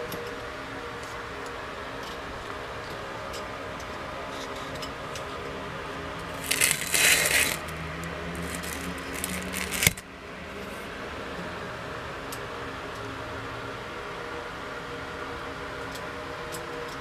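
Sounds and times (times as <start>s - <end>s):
loud rough noise: 6.3s - 10.0s.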